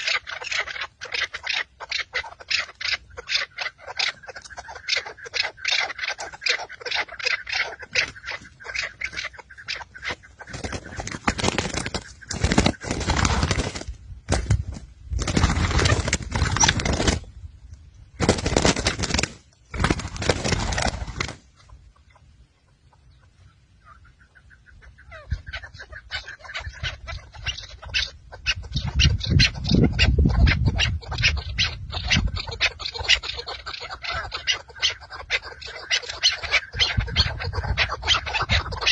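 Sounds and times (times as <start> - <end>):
wings flapping and scuffling: 0.0 - 17.4, 18.2 - 21.8.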